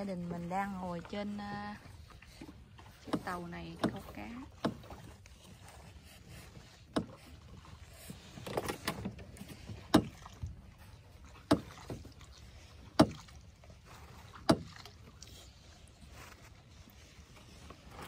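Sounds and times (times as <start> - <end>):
knocks against boat hull: 3.0 - 5.0, 6.9 - 7.2, 9.8 - 10.4, 11.4 - 12.0, 13.0 - 13.3, 14.3 - 14.9.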